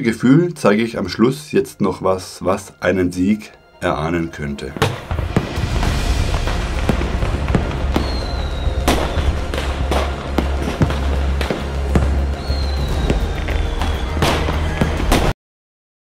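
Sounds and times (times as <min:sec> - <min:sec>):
firework bangs and crackles: 0:04.8 - 0:15.3
falling firework whistles: 0:05.1 - 0:10.0, 0:12.3 - 0:15.3
music with heavy bass: 0:05.1 - 0:15.3.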